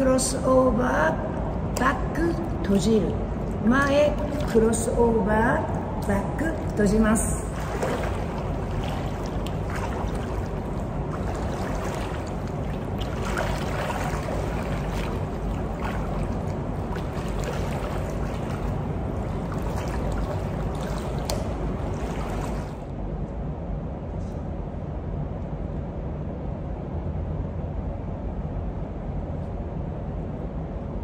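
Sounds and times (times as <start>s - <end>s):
water sloshing and splashing: 0.0s - 22.9s
steady low rumble: 0.0s - 31.0s.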